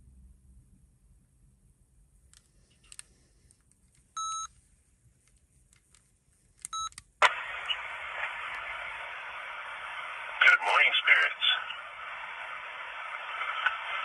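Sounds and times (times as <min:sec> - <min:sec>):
short beep: 0:04.2 - 0:04.5
speaker playback hiss: 0:04.4 - 0:14.0.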